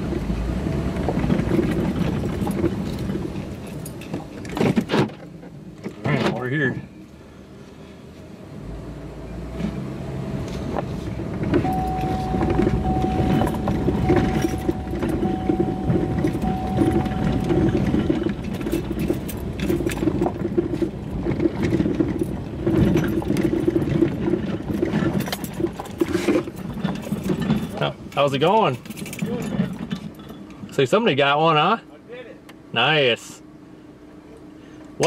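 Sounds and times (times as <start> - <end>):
engine and tyres on rock: 0.0 - 35.0
steady electronic beep: 11.6 - 18.3.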